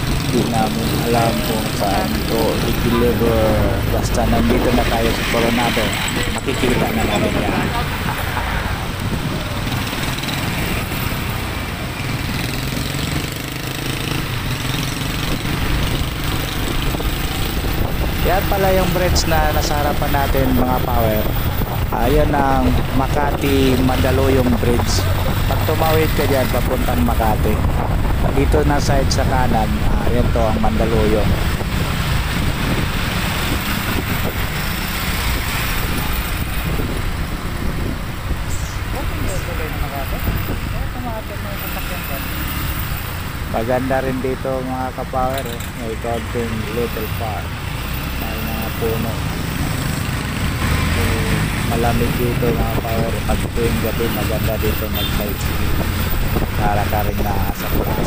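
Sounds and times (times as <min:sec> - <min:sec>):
road traffic noise: 0:00.0 - 0:58.0
motorcycle engine running: 0:09.2 - 0:21.9.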